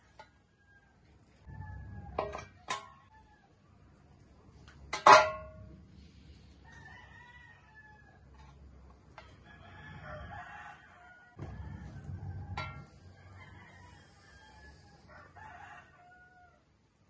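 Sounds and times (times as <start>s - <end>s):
chicken crowing: 0.5s - 3.6s, 6.6s - 8.5s, 9.3s - 16.7s.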